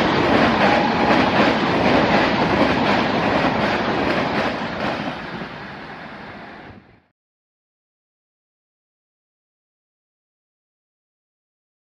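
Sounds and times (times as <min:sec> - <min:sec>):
clickety-clack over rail joints: 0:00.0 - 0:05.5
rumble of wheels on rail: 0:00.0 - 0:07.1.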